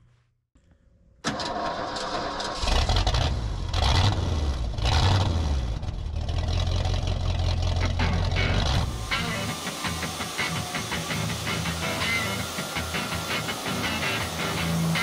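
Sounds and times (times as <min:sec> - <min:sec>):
truck engine starting and revving: 0:01.2 - 0:15.0.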